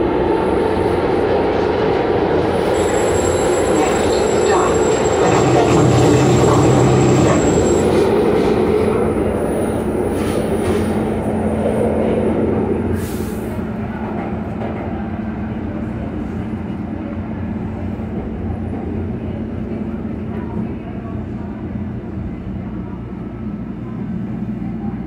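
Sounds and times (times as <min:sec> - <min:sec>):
high wheel squeal: 0:02.6 - 0:08.3.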